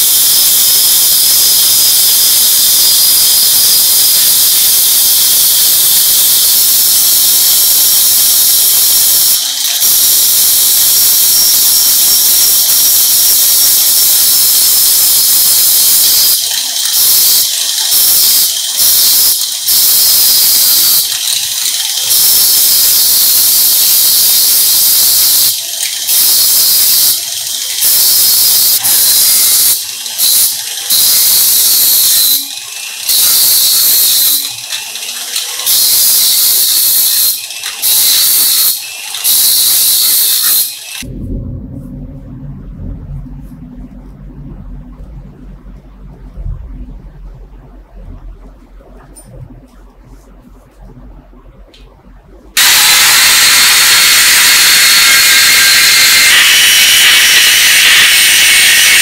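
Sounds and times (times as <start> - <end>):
angle grinder grinding metal: 4.2 - 19.7, 20.4 - 23.0, 52.6 - 59.0.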